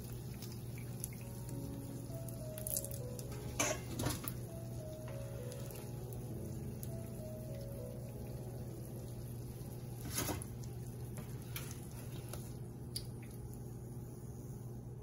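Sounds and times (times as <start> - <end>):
hot oil sizzling in a frying pan: 0.0 - 11.8.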